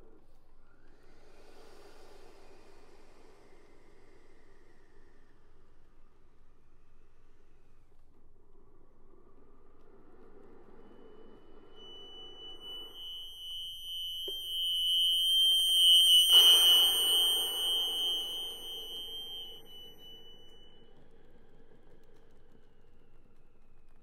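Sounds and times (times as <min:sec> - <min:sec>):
breathy hiss of air: 0:01.0 - 0:05.8, 0:10.6 - 0:20.3
accordion high sustained note: 0:11.8 - 0:20.7.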